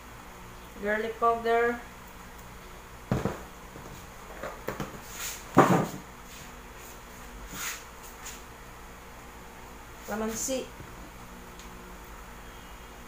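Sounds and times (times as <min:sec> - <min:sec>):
plastic bottle knocking on tabletop: 0:03.1 - 0:03.5.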